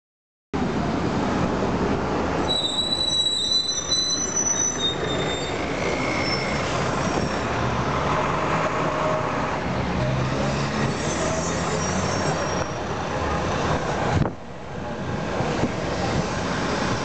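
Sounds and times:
brakes squealing: 0:02.5 - 0:07.6, 0:10.2 - 0:13.1.

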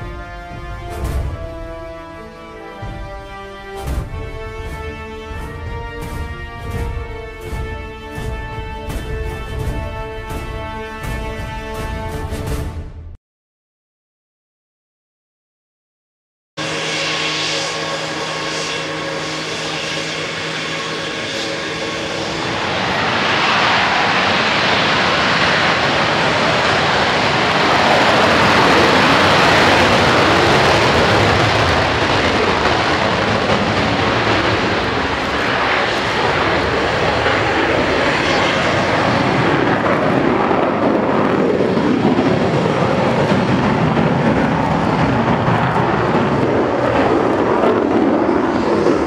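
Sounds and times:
jet engine whine: 0:00.0 - 0:12.6, 0:16.6 - 0:49.0
jet taking off roaring: 0:16.6 - 0:49.0.

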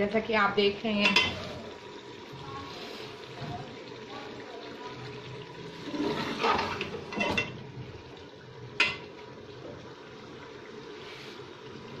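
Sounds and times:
vegetables frying: 0:00.0 - 0:12.0
ladle scraping pot: 0:05.8 - 0:07.6.

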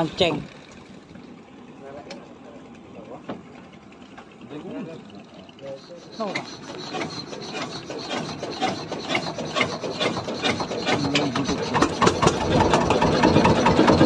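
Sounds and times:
boat engine running: 0:00.0 - 0:14.0
engine hand-crank knocks: 0:06.3 - 0:14.0.

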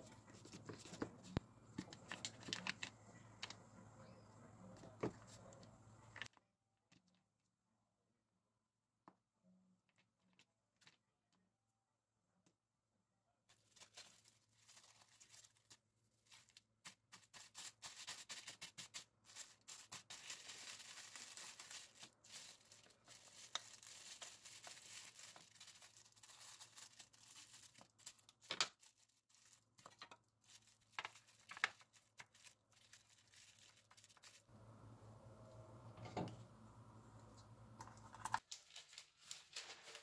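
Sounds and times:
plastic wrap crinkling: 0:00.0 - 0:03.6, 0:13.5 - 0:34.5, 0:38.1 - 0:40.0
scissors cutting plastic wrap: 0:16.9 - 0:29.0.

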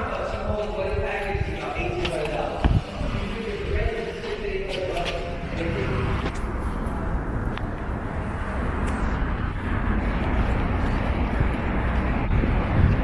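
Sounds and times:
city street traffic rumble: 0:00.0 - 0:13.0.

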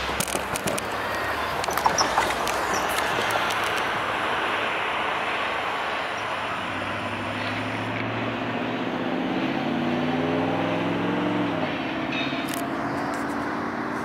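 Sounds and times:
freight train rumbling over rails: 0:00.0 - 0:07.9.

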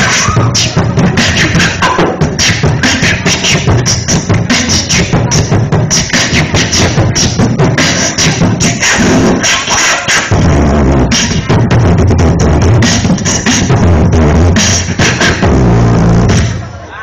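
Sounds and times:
beatboxing vocal percussion: 0:00.0 - 0:16.7
continuous low bass: 0:10.3 - 0:16.9.

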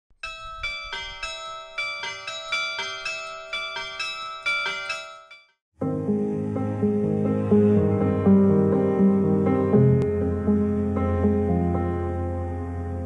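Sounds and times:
bells playing melody: 0:00.2 - 0:05.6
soft instrumental music: 0:05.8 - 0:13.0.

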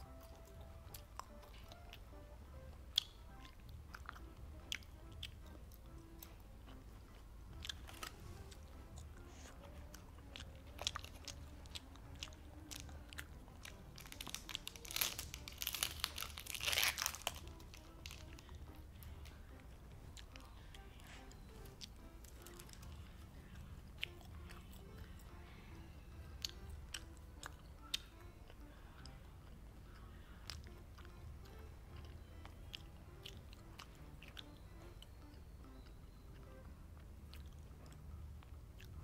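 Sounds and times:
chewing gummy candy: 0:00.0 - 0:39.0
plastic crinkling: 0:13.6 - 0:18.5.

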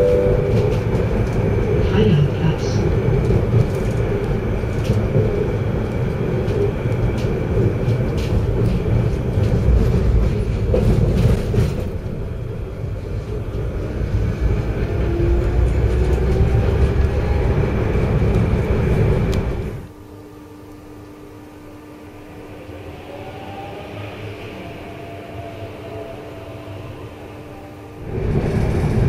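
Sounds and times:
tram rumble and rail noise: 0:00.0 - 0:29.0
faint rising whine: 0:21.3 - 0:28.2.

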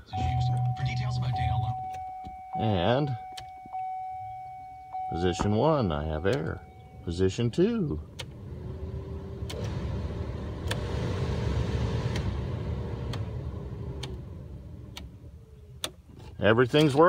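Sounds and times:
blower fan air rush: 0:08.5 - 0:14.4.

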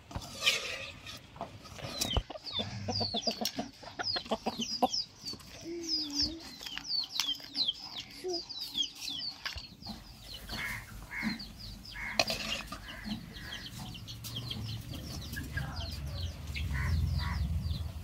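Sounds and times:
chickens clucking: 0:00.0 - 0:18.0
small birds chirping: 0:00.8 - 0:18.0
low rumble: 0:14.4 - 0:18.0.

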